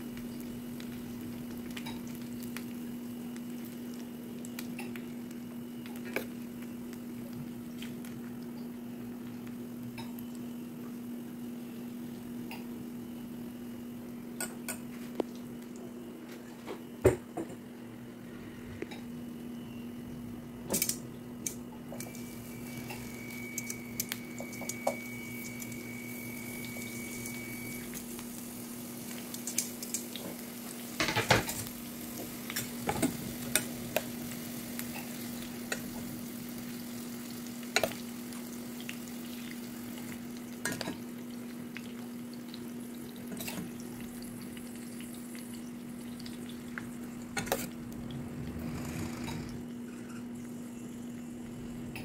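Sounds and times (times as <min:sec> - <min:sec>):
food sizzling in a pan: 0:00.0 - 0:13.6, 0:22.0 - 0:47.8
steady low hum: 0:43.0 - 0:52.0.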